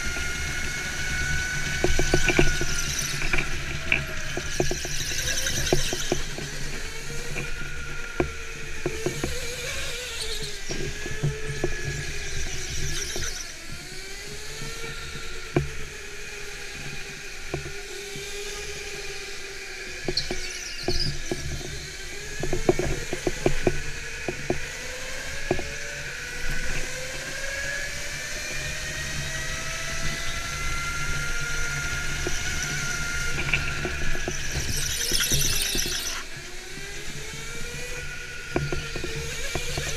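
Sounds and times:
go-kart motor whining: 0:00.0 - 0:39.9
tyre squeal: 0:00.2 - 0:06.7, 0:11.8 - 0:13.6, 0:20.1 - 0:21.6, 0:30.1 - 0:36.4.

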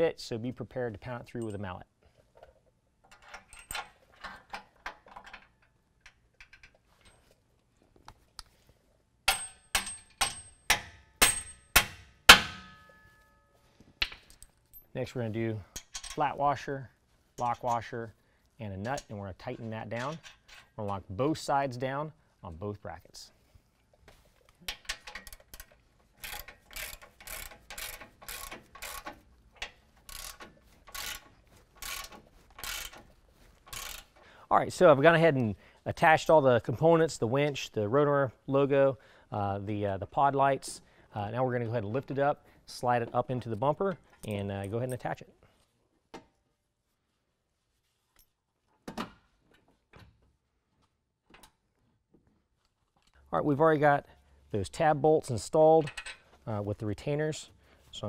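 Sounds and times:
mallet striking bolt ringing: 0:09.3 - 0:13.0
ratchet wrench clicking: 0:24.9 - 0:33.0, 0:33.7 - 0:34.1.

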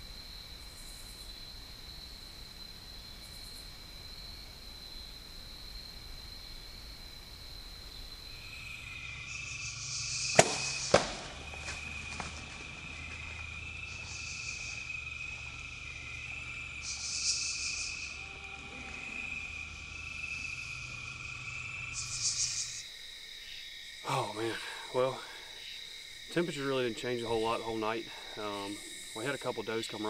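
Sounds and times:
crickets and insects calling: 0:00.0 - 0:30.0
arrow striking target: 0:10.3 - 0:11.4
bow string release crack: 0:10.4 - 0:11.4.

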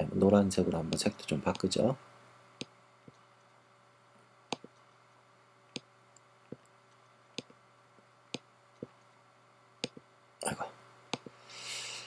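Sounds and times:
faint steady hum: 0:00.0 - 0:12.0
computer mouse clicks: 0:04.5 - 0:04.9, 0:09.8 - 0:10.0, 0:11.1 - 0:11.3.

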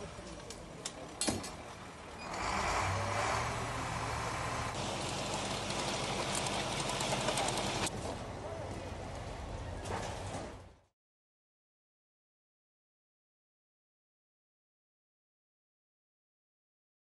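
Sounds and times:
crane engine humming: 0:00.0 - 0:09.8.

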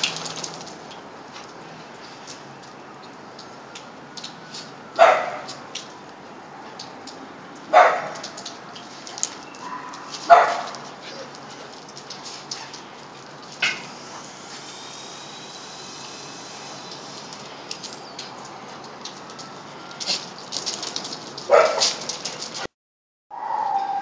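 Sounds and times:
dogs barking: 0:05.0 - 0:05.5, 0:07.7 - 0:08.2, 0:09.6 - 0:11.3, 0:21.5 - 0:22.1.

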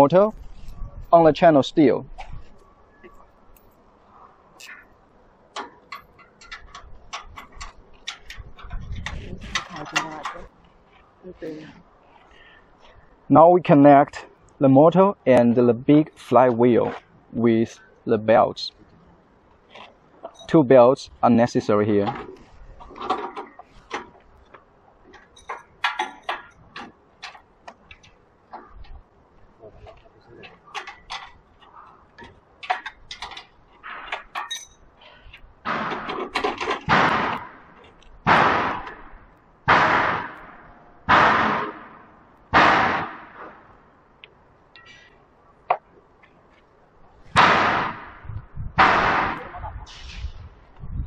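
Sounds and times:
metal parts clicking and tapping: 0:05.5 - 0:10.5, 0:22.1 - 0:29.0, 0:30.4 - 0:35.4.

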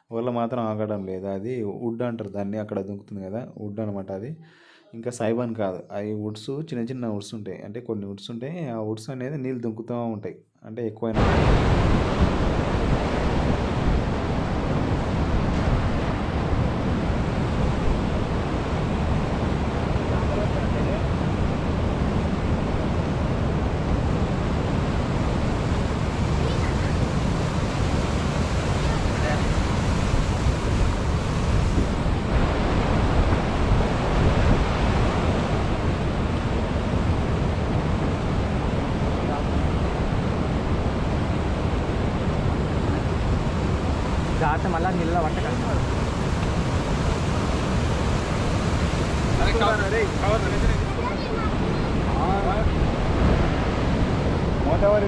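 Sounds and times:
wind on microphone: 0:11.2 - 0:55.0
river water rushing over rocks: 0:24.0 - 0:37.6, 0:42.1 - 0:54.8.

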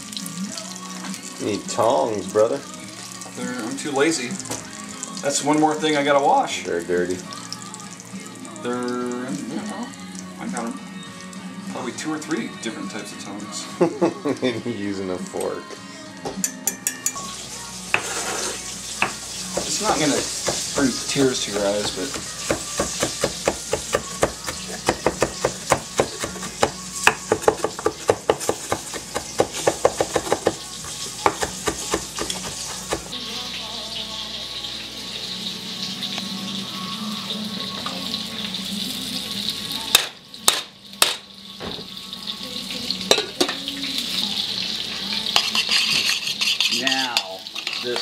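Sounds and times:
food sizzling in a frying pan: 0:00.0 - 0:48.0
knife chopping on wooden board: 0:19.0 - 0:20.7, 0:21.8 - 0:30.6, 0:31.2 - 0:33.1.

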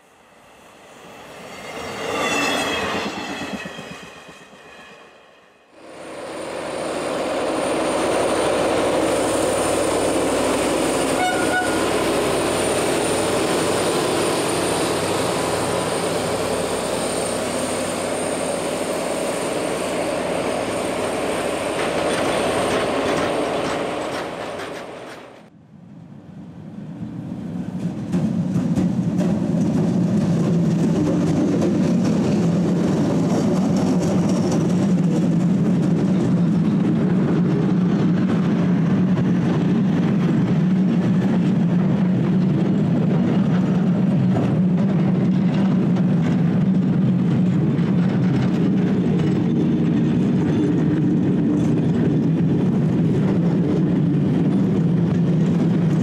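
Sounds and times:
diesel locomotives passing: 0:00.0 - 0:56.0
electric locomotive rumble: 0:00.0 - 0:56.0
train horn: 0:11.1 - 0:12.0
wheels clicking over rail joints: 0:40.0 - 0:56.0.

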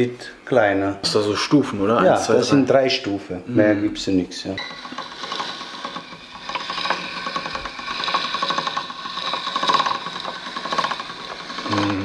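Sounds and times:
pasta machine clicking: 0:04.6 - 0:12.0.

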